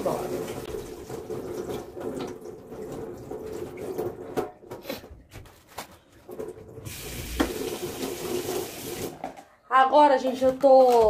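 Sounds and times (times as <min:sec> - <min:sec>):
tap water running into sink: 0:00.0 - 0:04.8, 0:06.3 - 0:09.3.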